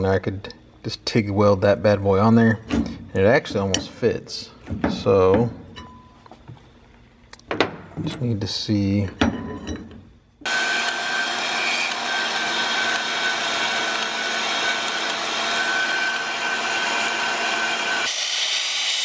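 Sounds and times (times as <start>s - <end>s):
belt grinder sanding metal: 10.4s - 19.0s
power tool whining: 10.4s - 19.0s.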